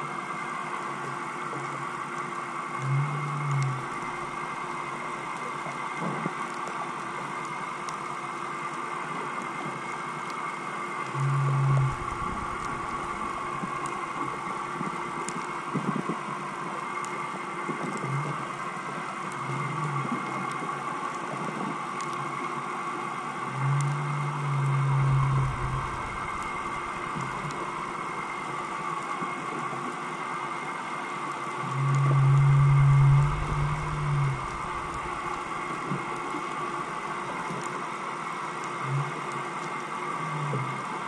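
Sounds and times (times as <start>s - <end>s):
underwater engine hum: 0.1s - 41.0s
low booming pulses: 11.2s - 15.0s, 23.6s - 28.5s, 31.7s - 36.2s
faint clicks: 23.5s - 29.2s.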